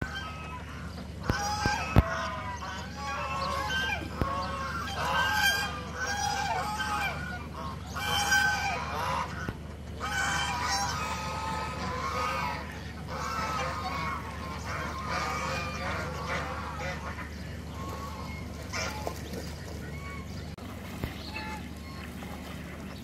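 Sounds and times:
geese honking: 0.0s - 23.0s.

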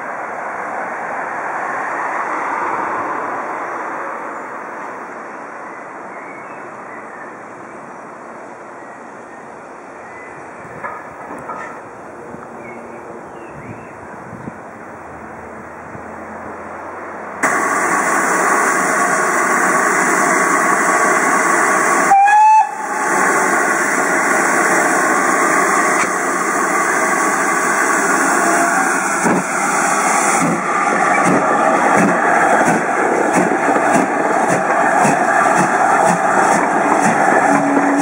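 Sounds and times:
loud hiss of steam: 17.4s - 38.0s
low exhaust beats of steam engine: 17.4s - 38.0s
steam whistle blast: 21.8s - 23.2s, 36.9s - 38.0s.

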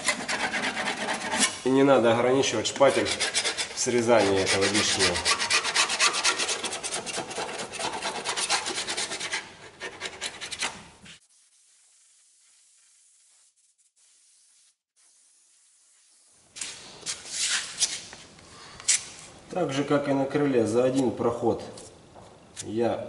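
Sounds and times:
spatula scraping filler: 2.6s - 10.8s.

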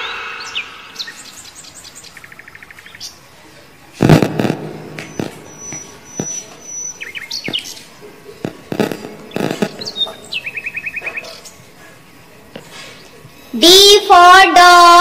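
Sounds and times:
sudden loud sound: 0.0s - 1.6s, 4.0s - 6.4s
faint bird-like chirps: 0.0s - 3.6s, 5.0s - 8.0s, 9.3s - 11.7s.

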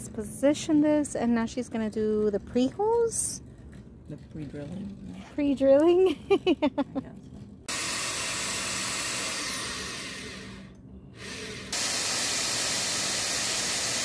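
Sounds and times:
electric drill drilling into wood: 7.7s - 14.0s.

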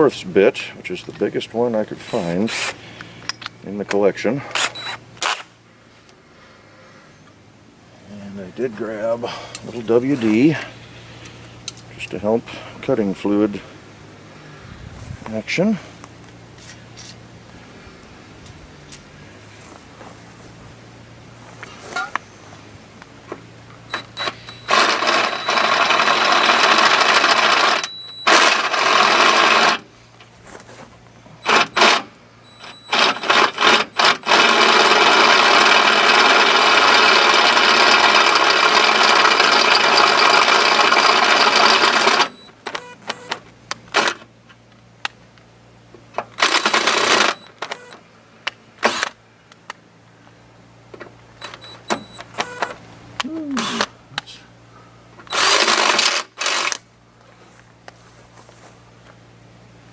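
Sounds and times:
drill boring through steel: 24.0s - 29.8s, 32.6s - 42.4s, 55.3s - 56.7s.

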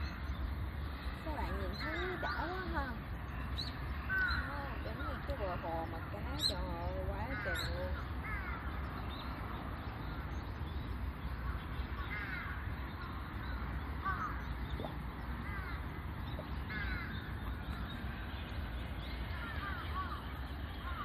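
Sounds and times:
low background rumble: 0.0s - 21.0s
crows cawing: 4.0s - 6.1s, 7.0s - 8.8s, 11.4s - 13.2s, 14.0s - 14.5s, 15.4s - 15.9s, 16.6s - 17.9s, 19.3s - 21.0s.

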